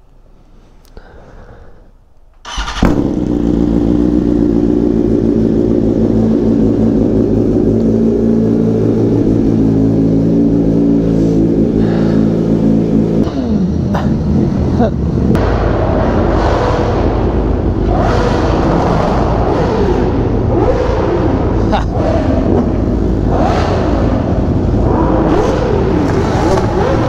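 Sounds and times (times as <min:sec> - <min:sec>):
motorcycle starter cranking: 0:02.4 - 0:03.7
motorcycle engine idling loudly: 0:02.5 - 0:13.8.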